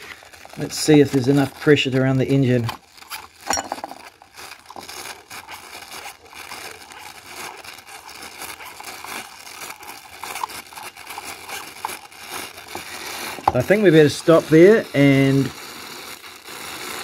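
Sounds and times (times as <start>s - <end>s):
scratchy crackles: 0.0s - 17.0s
steam hissing and spitting: 10.1s - 17.0s.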